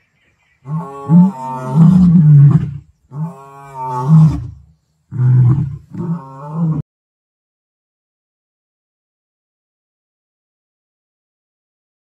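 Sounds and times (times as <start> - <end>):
lion roaring: 0.7 - 6.8.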